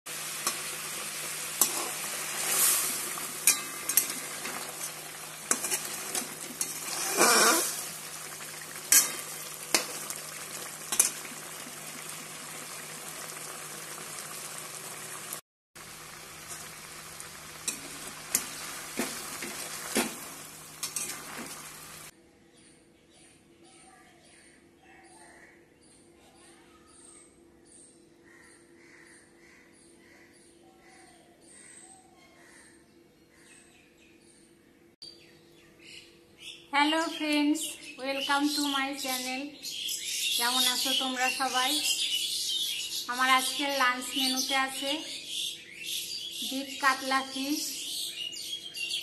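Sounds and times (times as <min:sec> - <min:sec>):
oil sizzling in a frying pan: 0:00.1 - 0:22.1
spatula scraping a pan: 0:01.6 - 0:10.2, 0:17.7 - 0:21.6.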